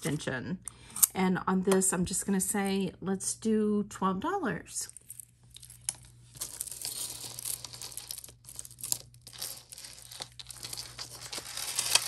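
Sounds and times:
packaging crinkling: 5.5s - 12.0s.

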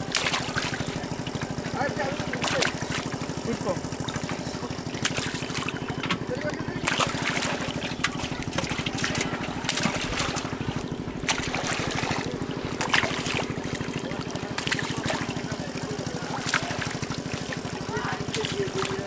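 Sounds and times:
fish splashing in water: 0.0s - 19.0s
small engine running: 0.0s - 19.0s.

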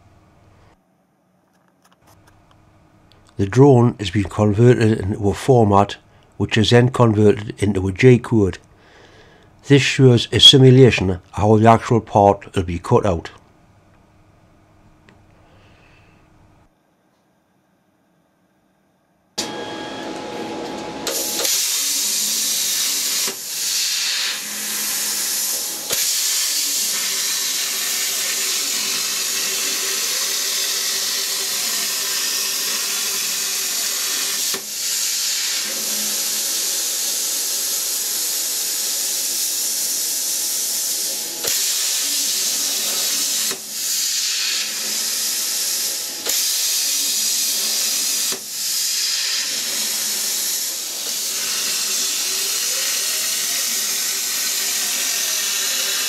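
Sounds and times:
plasma cutter arc hissing: 21.0s - 56.0s.

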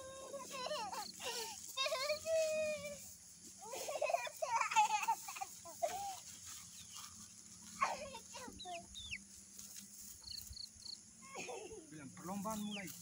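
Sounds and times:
chickens clucking: 3.4s - 11.0s, 11.7s - 13.0s
high bird chirps: 8.6s - 9.2s.

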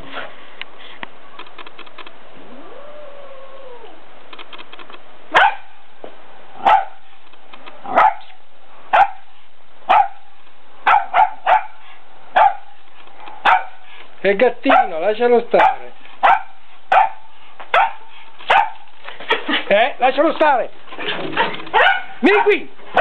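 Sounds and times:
small dog barking: 5.3s - 5.8s, 6.6s - 7.0s, 7.8s - 9.3s, 9.9s - 12.7s, 13.4s - 13.8s, 14.7s - 15.0s, 15.6s - 18.8s, 21.7s - 23.0s.

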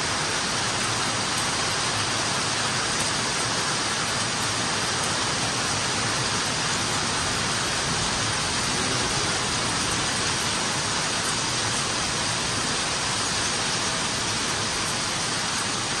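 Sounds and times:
heavy rain pouring: 0.0s - 16.0s.

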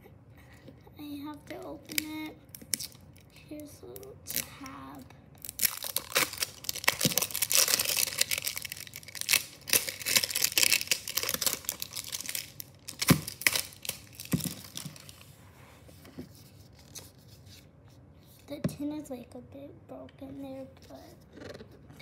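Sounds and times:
plastic seal tearing and crinkling: 1.8s - 3.0s, 5.4s - 15.2s.

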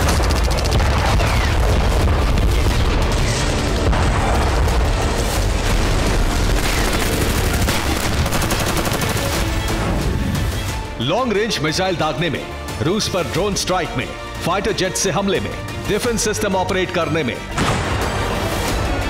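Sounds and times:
sharp cracks: 0.0s - 9.8s
deep booming explosions: 0.0s - 10.5s, 17.5s - 18.3s.

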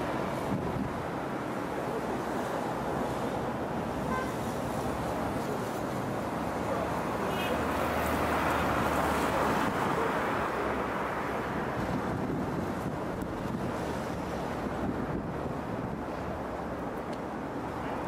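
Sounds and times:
wind rushing over microphone: 0.0s - 4.0s, 10.9s - 17.8s
road traffic noise: 0.0s - 18.0s.

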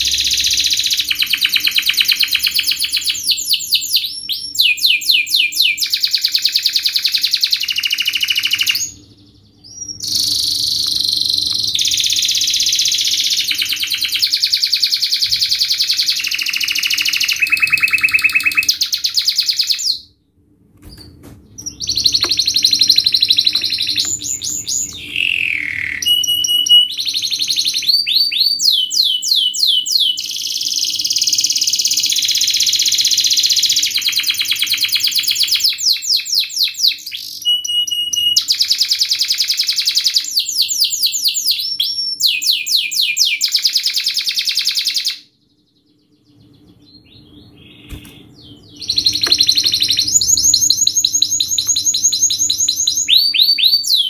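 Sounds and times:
canary singing trills: 0.0s - 20.1s, 21.5s - 54.0s.

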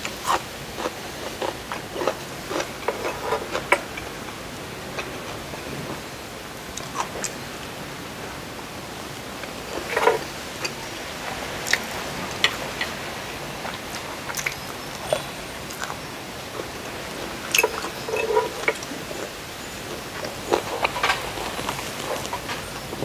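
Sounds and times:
person chewing: 0.2s - 3.9s, 13.6s - 19.3s, 20.1s - 23.0s.

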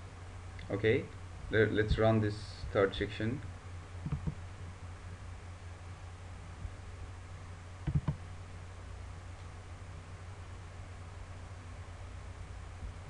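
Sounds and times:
steady low hum: 0.0s - 13.0s
computer mouse button clicks: 7.9s - 8.2s.

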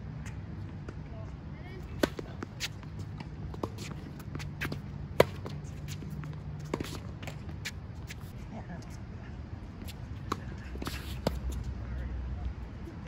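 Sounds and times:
shoes shuffling on court: 1.8s - 8.5s, 9.7s - 11.9s
tennis ball bouncing: 1.9s - 8.2s
tennis racket hitting ball: 2.0s - 7.8s.

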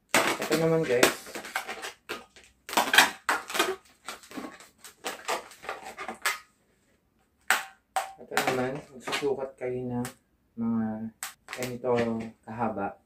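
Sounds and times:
balloons squeaking and rubbing: 0.1s - 6.5s.

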